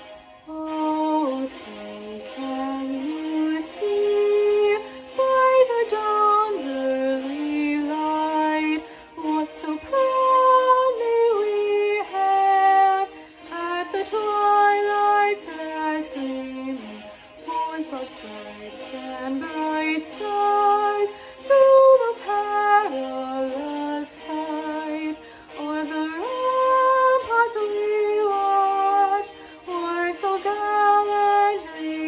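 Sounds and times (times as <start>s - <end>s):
girl singing: 0.5s - 32.0s
singer breathing: 4.8s - 5.2s, 8.8s - 9.2s, 13.1s - 13.5s, 17.0s - 17.5s, 21.1s - 21.4s, 25.1s - 25.6s, 29.3s - 29.7s.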